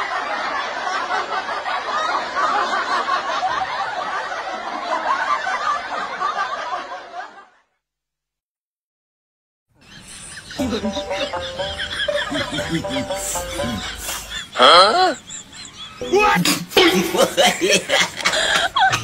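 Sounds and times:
laughter: 0.0 - 7.8, 9.8 - 19.0.

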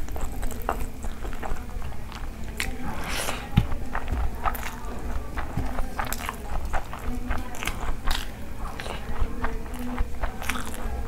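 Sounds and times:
wet chewing and mouth smacks: 0.0 - 11.0.

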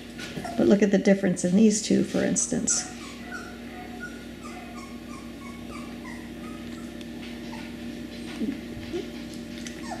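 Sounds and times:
steady low hum: 0.0 - 10.0
puppies whimpering: 0.2 - 0.8, 2.7 - 10.0
puppy whining: 0.2 - 0.8, 2.7 - 10.0.

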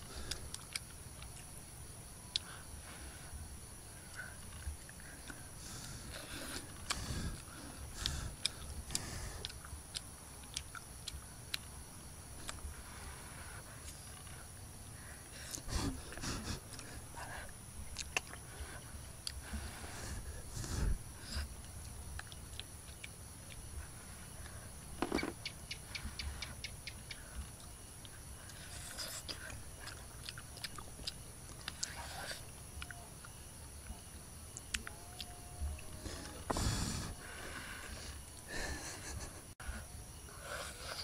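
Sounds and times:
rustle: 0.0 - 41.0
chewing with wet mouth clicks: 2.3 - 2.6, 6.4 - 11.8, 17.9 - 18.5, 21.7 - 23.7, 25.4 - 35.4
high-pitched insect drone: 31.8 - 41.0.

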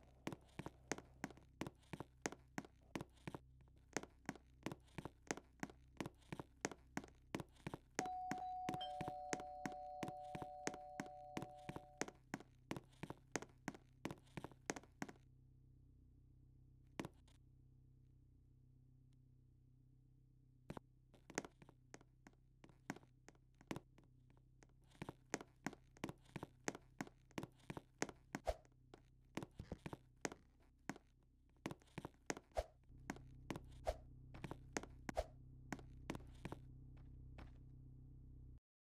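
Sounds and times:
low steady hum: 8.0 - 12.0.

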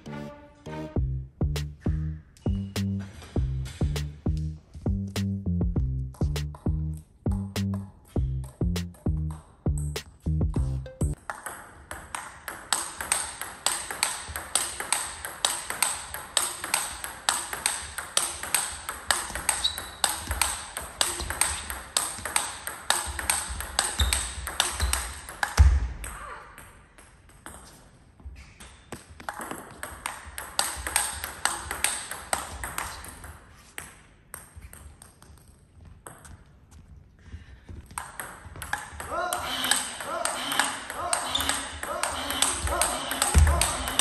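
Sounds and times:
heavy low thump: 3.4 - 7.5
table tennis ball clicking: 11.1 - 25.6, 29.2 - 33.4.

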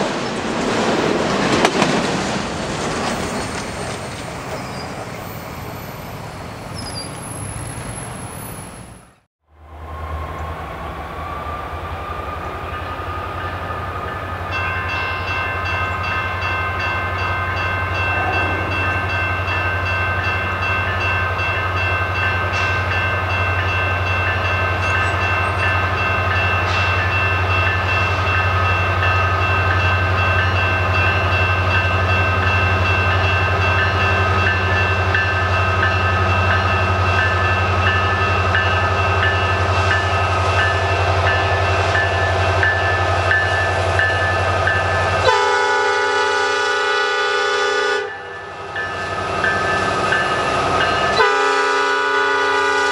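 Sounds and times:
diesel locomotive engine drone: 0.0 - 52.9
steady high tones: 14.5 - 45.2.

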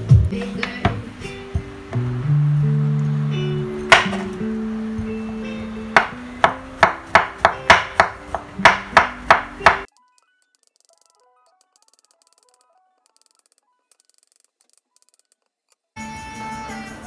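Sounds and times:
acoustic guitar music: 0.1 - 10.2
knife chopping on wooden board: 3.9 - 4.4, 5.0 - 9.9.

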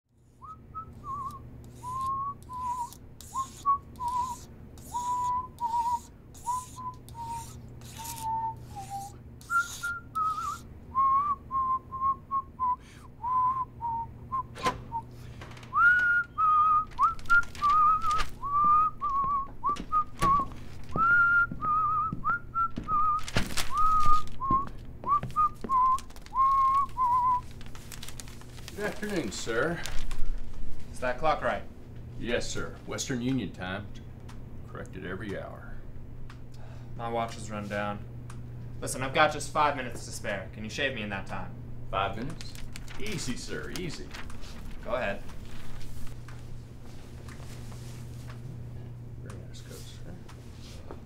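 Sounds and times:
person whistling a tune: 0.4 - 15.1, 15.7 - 27.5.

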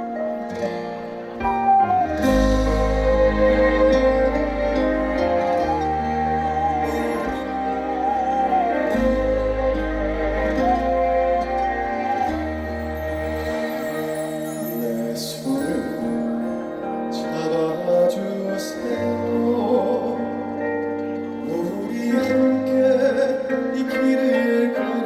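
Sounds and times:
instrumental accompaniment: 0.0 - 25.0
man singing into microphone: 12.9 - 25.0.

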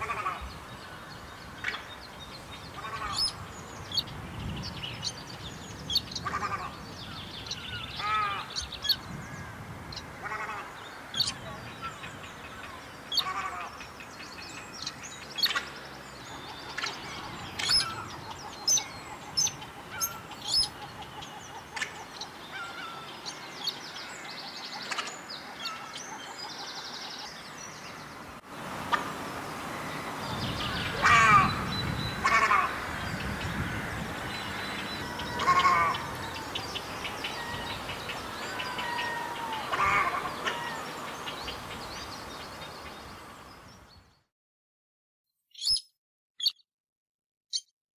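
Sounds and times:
crake nasal chattering calls: 10.2 - 23.8.

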